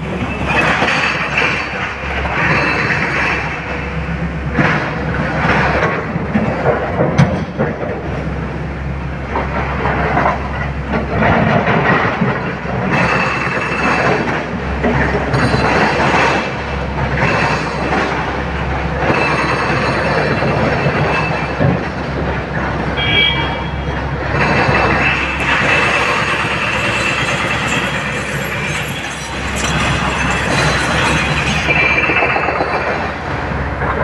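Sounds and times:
excavator diesel engine under load: 0.0s - 34.0s
hydraulics working: 0.0s - 34.0s
rock scraping and clattering: 24.4s - 33.0s.

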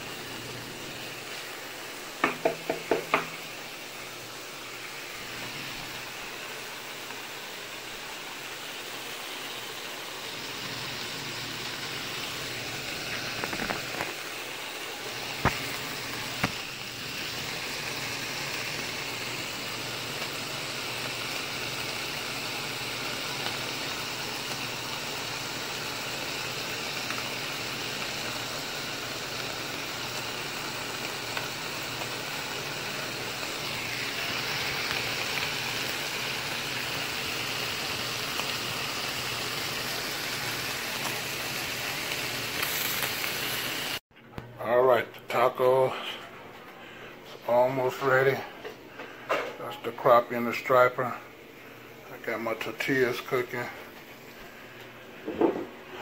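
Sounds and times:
fish sizzling in a skillet: 0.0s - 44.0s
spatula clacking against pan: 2.2s - 3.4s.

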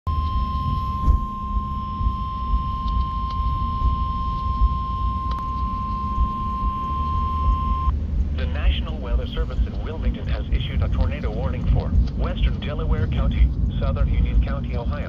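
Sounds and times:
weather radio alert tone: 0.1s - 12.5s
low rumble: 0.1s - 15.0s
faint clicks: 2.8s - 3.5s.

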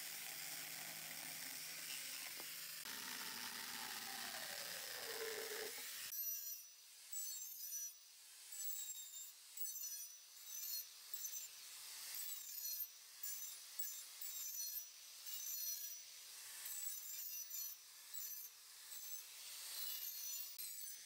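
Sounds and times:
angle grinder sanding wood: 0.0s - 6.1s.

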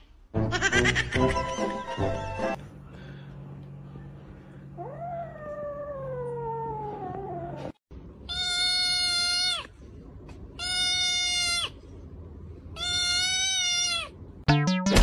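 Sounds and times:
kitten meowing: 12.8s - 14.1s.

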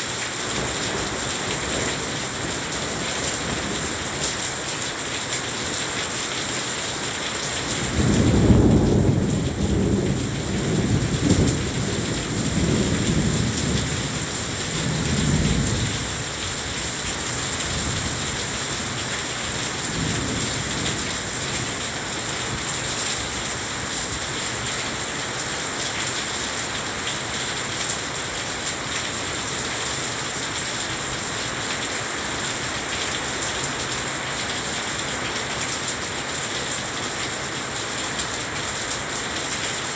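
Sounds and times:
heavy rain pouring: 0.0s - 39.9s
thunder rumbling: 8.0s - 16.2s.

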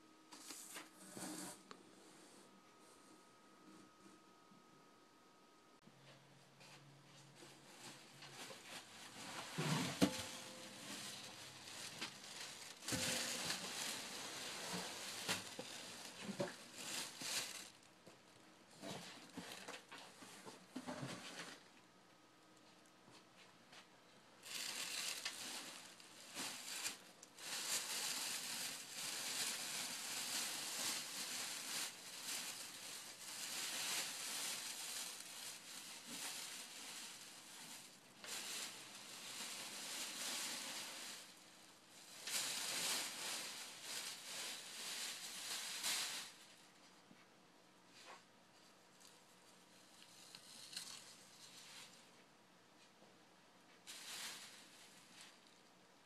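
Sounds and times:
plastic wrapping crinkling: 6.7s - 20.6s, 24.4s - 46.9s, 48.9s - 52.2s, 53.8s - 55.7s.

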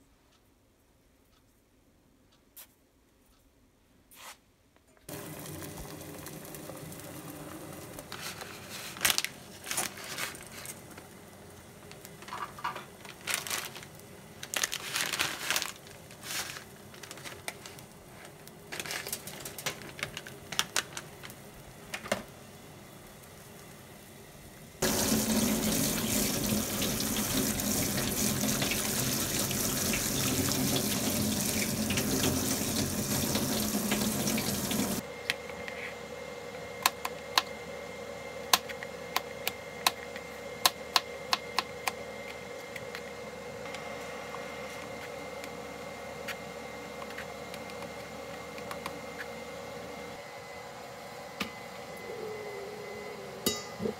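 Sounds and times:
low steady hum: 4.8s - 53.9s
tap water running into colander: 5.1s - 8.2s, 24.8s - 35.0s.

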